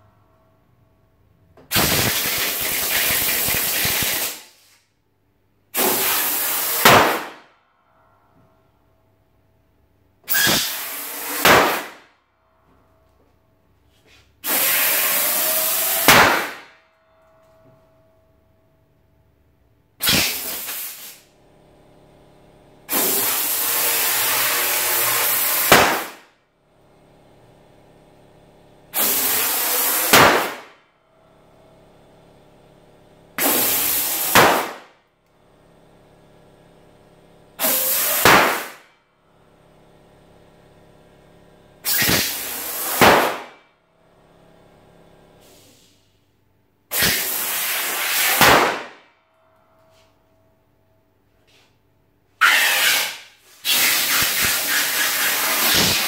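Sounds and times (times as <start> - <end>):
balloon bursting pop: 1.7 - 4.4, 6.8 - 7.4, 11.4 - 12.0, 16.1 - 16.7, 20.0 - 20.9, 25.6 - 26.2, 30.1 - 30.7, 33.4 - 34.9, 37.6 - 38.8, 41.8 - 43.6, 48.1 - 49.0
compressed air hissing: 1.7 - 4.8, 5.8 - 6.9, 10.3 - 11.9, 14.1 - 16.6, 20.0 - 21.3, 22.9 - 26.2, 29.0 - 30.7, 33.4 - 34.8, 37.6 - 38.8, 41.8 - 43.3, 45.4 - 46.2, 46.9 - 48.4, 52.4 - 56.0.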